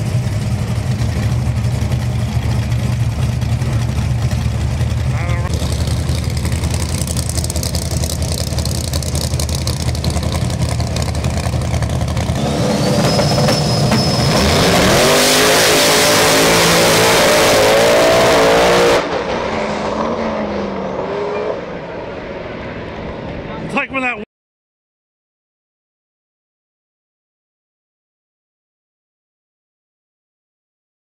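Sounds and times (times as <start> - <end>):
drag car engines revving: 0.0 - 23.7
high engine whine: 0.0 - 24.2.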